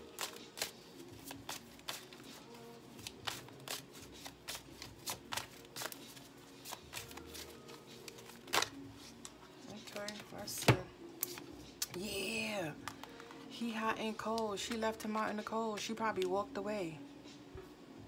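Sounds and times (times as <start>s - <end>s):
cards being shuffled: 0.1s - 12.0s.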